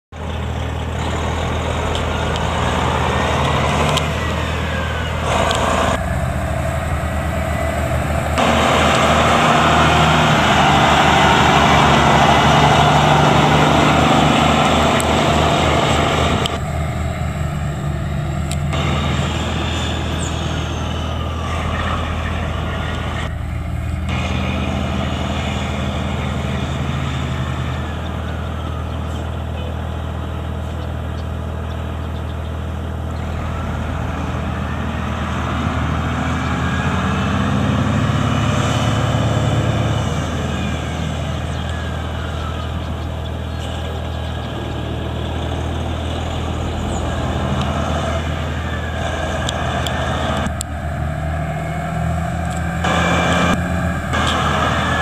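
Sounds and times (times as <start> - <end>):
diesel truck engine idling: 0.2 - 35.8, 39.3 - 55.0.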